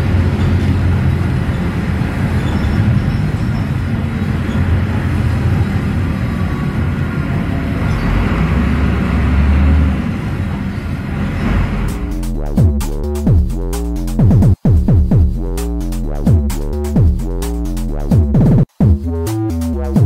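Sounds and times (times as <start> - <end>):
bus engine drone: 0.0 - 14.2
deeper engine drone: 0.0 - 20.0.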